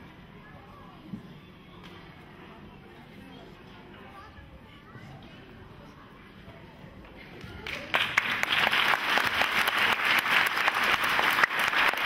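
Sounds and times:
audience applauding: 0:07.6 - 0:12.0.

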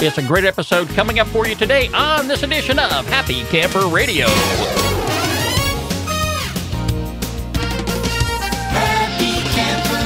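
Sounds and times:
low bass line: 0:04.2 - 0:06.1.

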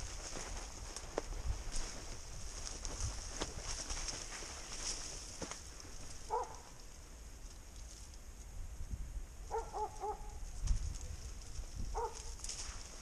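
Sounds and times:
footsteps: 0:00.0 - 0:06.7, 0:10.6 - 0:13.0
brush rustling: 0:00.0 - 0:08.2, 0:10.0 - 0:13.0
distant dog barking: 0:06.3 - 0:06.8, 0:09.5 - 0:10.4, 0:11.9 - 0:12.4.

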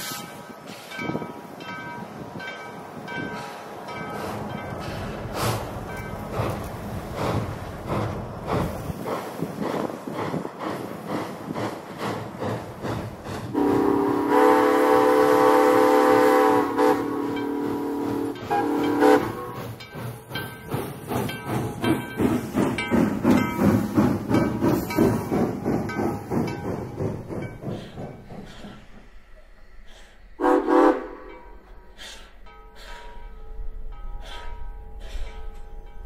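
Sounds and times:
steam locomotive exhaust chuffs: 0:03.2 - 0:36.0
steam locomotive whistle: 0:13.5 - 0:19.7, 0:30.4 - 0:31.3.

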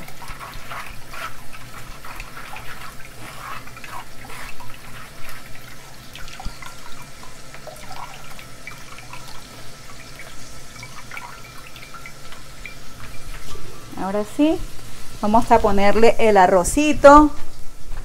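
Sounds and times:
liquid dripping through sieve: 0:00.0 - 0:14.0.

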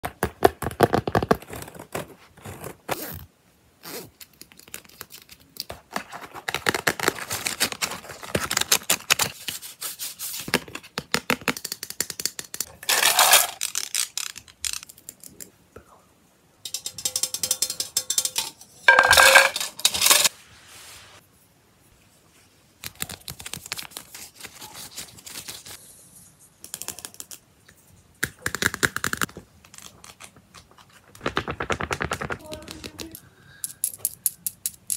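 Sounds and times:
handling small objects: 0:11.6 - 0:15.6, 0:16.7 - 0:20.3
clicks rattles and scrapes: 0:12.5 - 0:15.2, 0:16.7 - 0:20.3.

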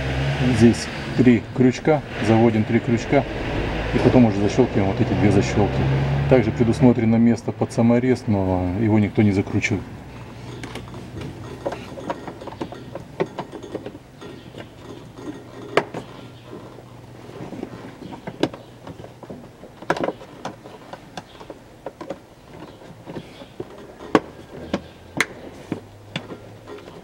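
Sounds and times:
plastic parts clicking and knocking: 0:10.5 - 0:16.6, 0:17.6 - 0:27.0.

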